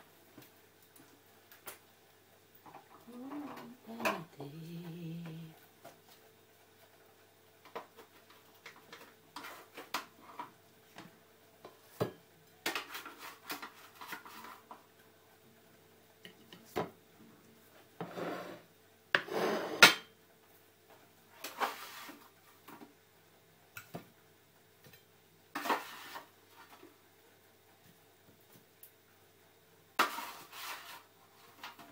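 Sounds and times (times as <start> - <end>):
spatula scraping metal tray: 18.0 - 18.6, 19.2 - 19.8, 30.0 - 31.1.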